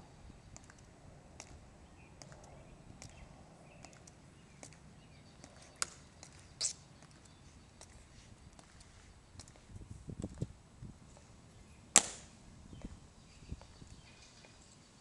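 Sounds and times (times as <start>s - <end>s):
metal-tapped shoes clicking on stone: 5.4s - 9.6s.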